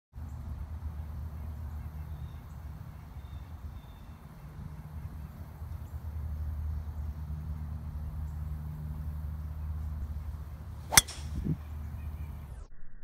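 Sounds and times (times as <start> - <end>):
golf club striking ball: 10.8 - 11.6.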